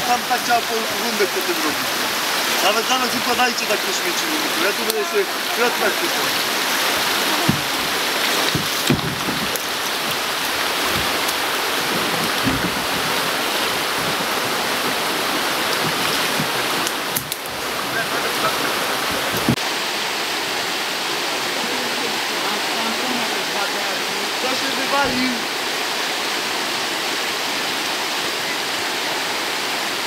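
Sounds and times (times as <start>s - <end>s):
river water over rapids: 0.0s - 30.0s
dull knocks: 7.0s - 15.0s, 15.6s - 17.4s.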